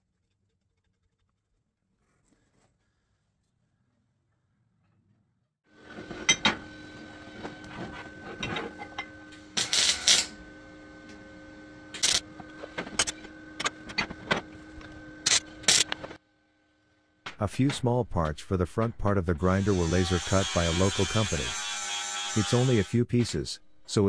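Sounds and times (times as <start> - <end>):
welder hum: 5.9 - 17.1, 18.8 - 24.0.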